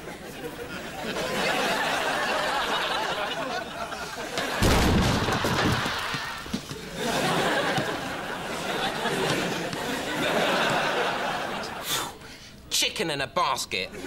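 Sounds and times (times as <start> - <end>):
studio audience laughing: 0.0 - 11.8
heavy thump: 4.6 - 6.2.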